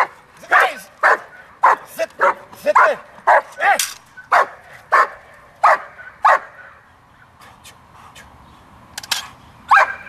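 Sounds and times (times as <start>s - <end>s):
dog barking: 0.0s - 3.5s, 4.3s - 6.8s, 9.7s - 10.0s.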